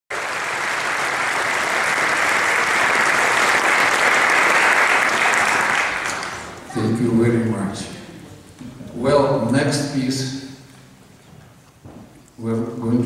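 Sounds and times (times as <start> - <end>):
audience applause: 0.1 - 6.8.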